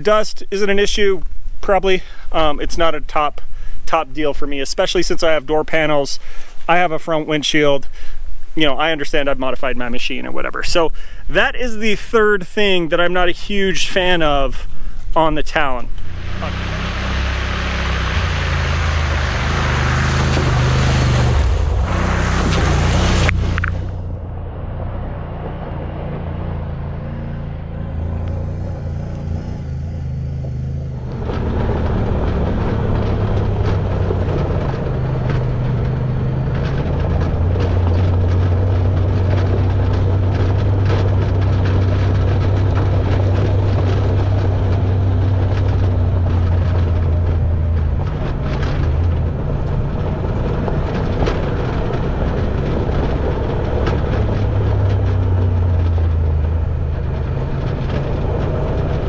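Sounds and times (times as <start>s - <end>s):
vehicle engine running: 0.0s - 59.0s
tyre and wind noise: 28.8s - 59.0s.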